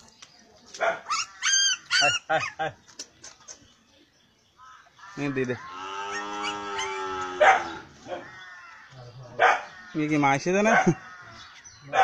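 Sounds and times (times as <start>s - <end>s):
dog barking: 0.8s - 1.1s, 7.4s - 8.3s, 9.4s - 9.7s.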